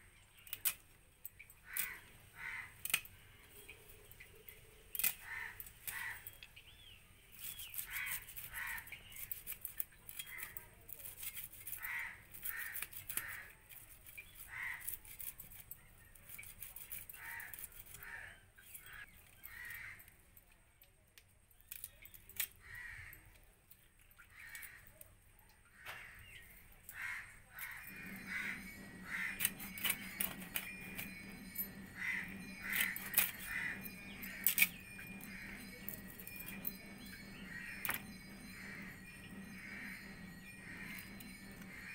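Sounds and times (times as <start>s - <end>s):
crows cawing: 1.6s - 2.9s, 5.1s - 6.3s, 7.9s - 8.9s, 11.7s - 13.6s, 14.4s - 15.0s, 17.1s - 20.1s, 22.5s - 23.3s, 24.2s - 25.0s, 25.7s - 30.8s, 31.9s - 41.9s
scraping fish scales off: 7.3s - 19.4s
steady low hum: 27.5s - 41.9s.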